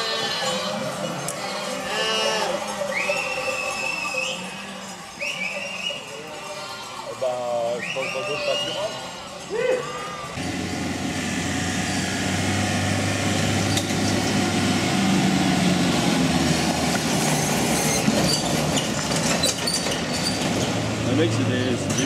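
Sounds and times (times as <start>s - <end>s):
pickup truck engine running: 10.4s - 19.4s
trailer rattling: 10.4s - 22.0s.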